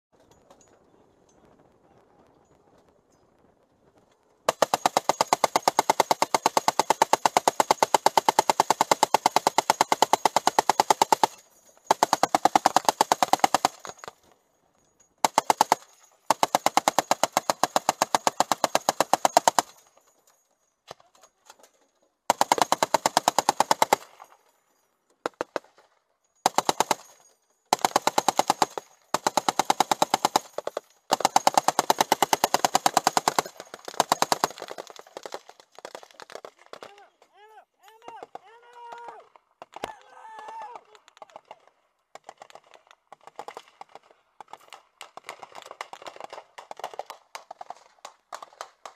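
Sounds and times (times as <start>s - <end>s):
machine gun firing bursts: 4.5s - 14.1s, 15.2s - 19.9s, 22.3s - 24.3s, 26.4s - 36.8s.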